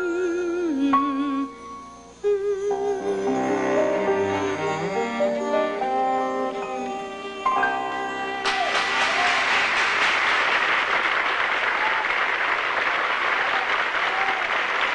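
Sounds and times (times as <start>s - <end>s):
cello and piano: 0.8s - 8.4s
audience applause: 8.4s - 14.9s.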